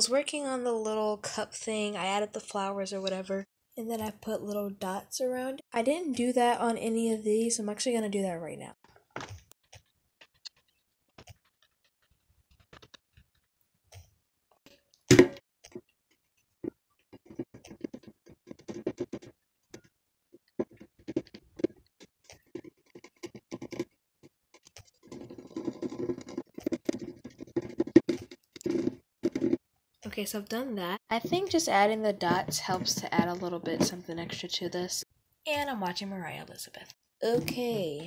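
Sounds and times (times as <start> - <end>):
marker tapping on cup: 16.6 - 19.4, 20.6 - 21.8, 25.1 - 29.6.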